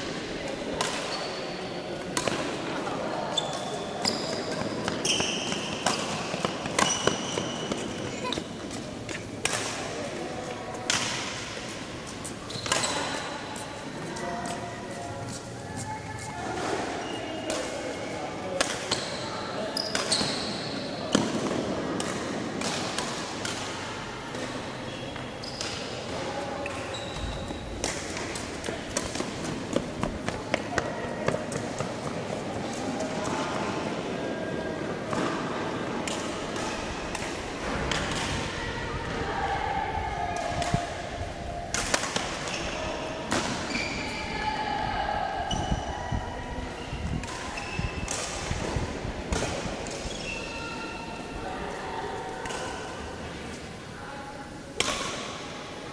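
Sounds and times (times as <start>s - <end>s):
racket hitting shuttlecock: 0.8s - 1.2s, 2.0s - 2.6s, 4.3s - 10.0s, 12.6s - 13.4s, 41.7s - 42.7s
rackets hitting shuttlecock: 0.8s - 1.2s, 2.0s - 2.7s, 3.5s - 10.0s, 10.8s - 11.6s, 12.6s - 13.4s, 21.1s - 23.7s, 26.7s - 32.0s, 41.7s - 43.8s
shoes squeaking on court: 3.2s - 9.5s, 11.6s - 17.7s, 18.8s - 21.1s, 24.9s - 33.1s, 42.4s - 44.3s, 49.8s - 51.3s.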